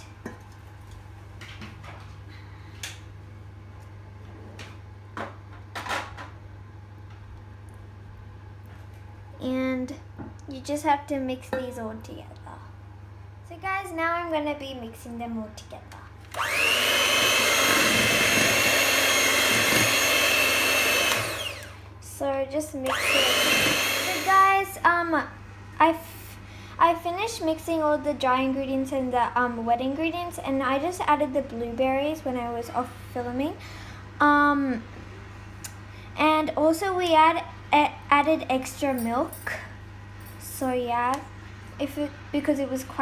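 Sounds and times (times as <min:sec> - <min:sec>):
electric hand mixer whining: 0:16.3 - 0:21.8, 0:22.8 - 0:24.6.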